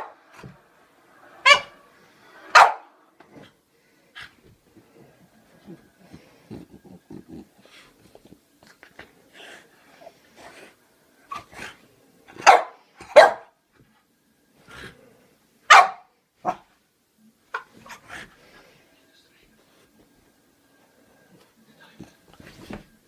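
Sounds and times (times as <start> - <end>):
dog barking: 2.5 - 2.9, 12.4 - 13.6, 15.7 - 16.6.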